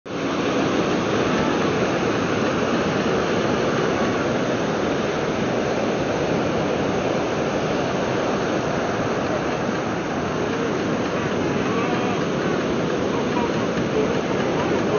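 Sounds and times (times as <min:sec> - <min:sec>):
ocean surf breaking on beach: 0:00.1 - 0:14.9.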